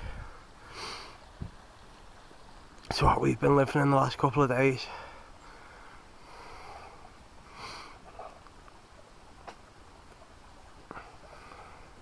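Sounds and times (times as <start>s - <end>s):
soft breathy hissing: 0.0s - 1.3s, 4.8s - 8.4s, 10.9s - 12.0s.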